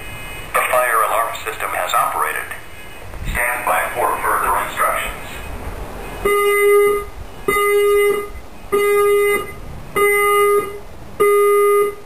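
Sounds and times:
fire alarm beeping: 6.2s - 12.0s.

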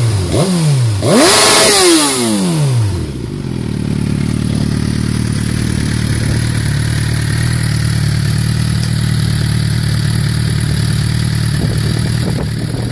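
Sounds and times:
motorcycle engine idling: 2.3s - 12.9s.

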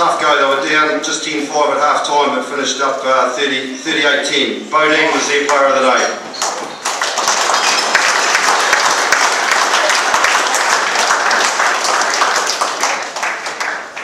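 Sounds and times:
crowd applauding: 6.4s - 14.0s.

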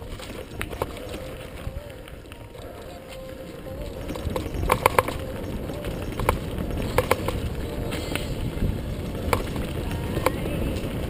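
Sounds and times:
bike rattling over bumps: 0.0s - 11.0s
bike tyres rumbling on dirt: 0.0s - 11.0s
wind on microphone: 0.0s - 11.0s.

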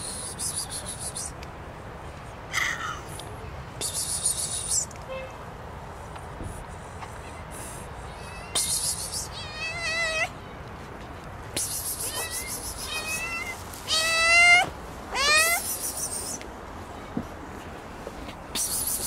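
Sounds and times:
cat meowing: 8.1s - 10.4s, 12.0s - 15.7s.

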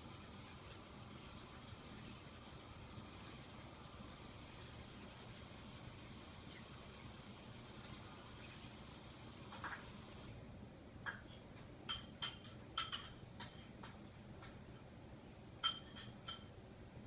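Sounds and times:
spoon clinking against dish: 15.6s - 16.5s.

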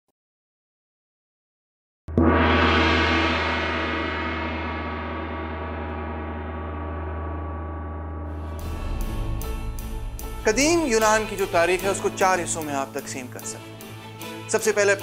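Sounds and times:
music: 2.1s - 15.0s
gong-like hit ringing: 2.2s - 13.0s
steady low hum: 8.4s - 11.9s.

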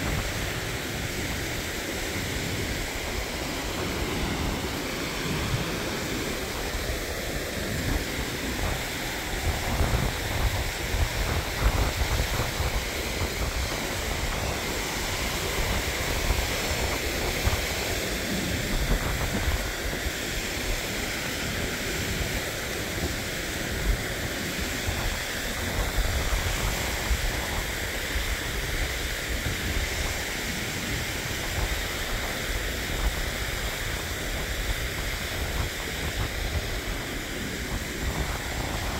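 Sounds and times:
stream rushing over rocks: 0.0s - 38.9s
wind on microphone: 0.0s - 38.9s.

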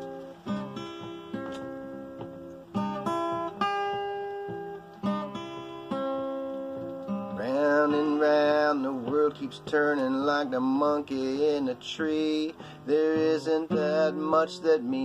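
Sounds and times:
acoustic guitar chords: 0.0s - 15.0s
man singing: 7.4s - 15.0s.

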